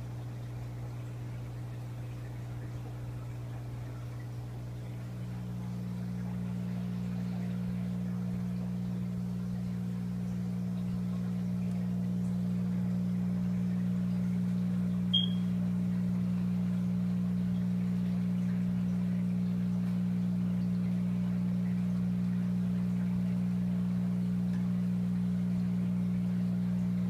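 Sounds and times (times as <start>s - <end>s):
aquarium equipment hum: 0.0s - 27.0s
brief high blip: 15.1s - 15.5s.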